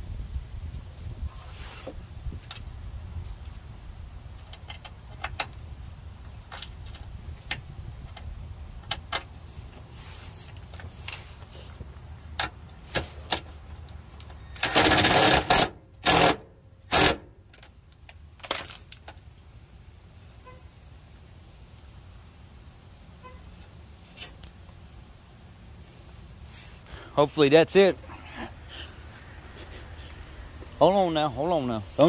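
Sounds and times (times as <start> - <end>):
cordless power drill bursts: 14.6 - 17.3.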